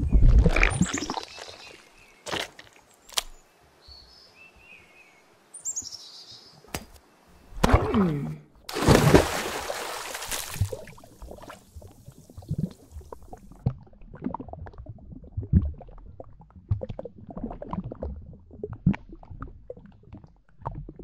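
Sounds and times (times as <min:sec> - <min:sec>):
stomach gurgling: 0:00.0 - 0:02.6, 0:10.5 - 0:21.0
stomach rumbling: 0:00.0 - 0:02.8, 0:10.5 - 0:21.0.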